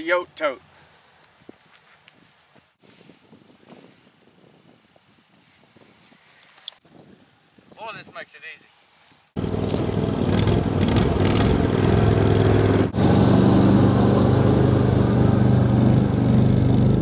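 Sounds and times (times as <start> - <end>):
vehicle engine driving past: 9.4 - 17.0.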